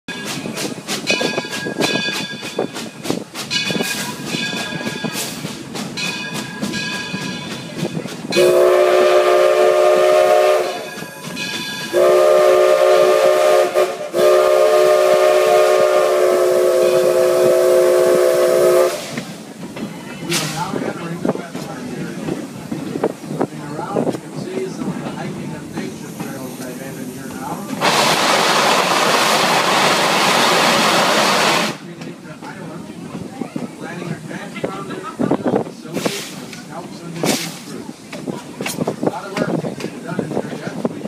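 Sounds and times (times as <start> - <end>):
moving train: 0.1 - 41.0
steam locomotive chime whistle: 8.3 - 19.2.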